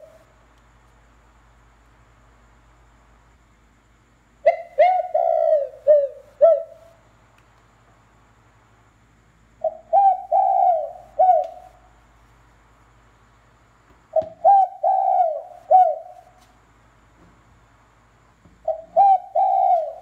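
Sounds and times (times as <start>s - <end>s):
recorded bird call from speaker: 18.6s - 20.0s.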